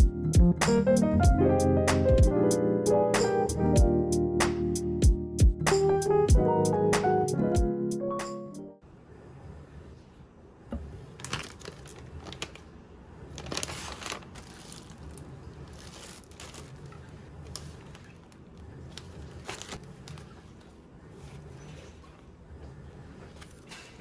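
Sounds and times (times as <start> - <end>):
plastic packaging crinkling: 11.2 - 20.4.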